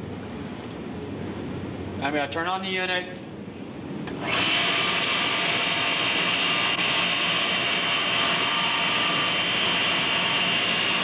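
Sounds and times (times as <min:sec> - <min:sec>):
motor and generator whining: 0:04.0 - 0:11.0.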